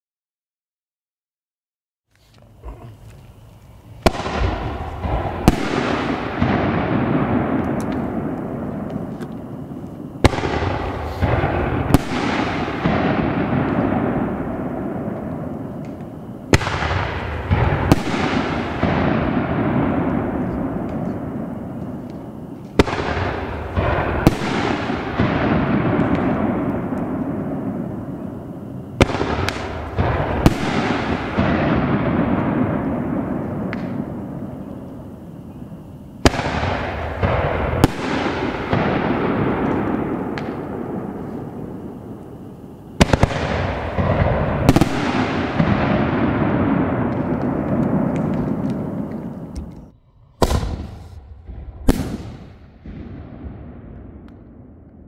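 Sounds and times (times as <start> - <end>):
firework launch thump: 47.1 - 53.2
firework shell bang: 49.6 - 53.5.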